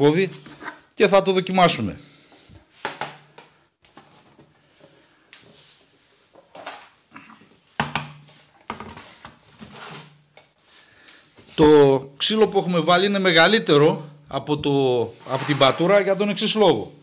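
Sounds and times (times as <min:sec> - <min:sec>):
plastic drum set on wood: 0:07.8 - 0:10.3, 0:15.2 - 0:16.5.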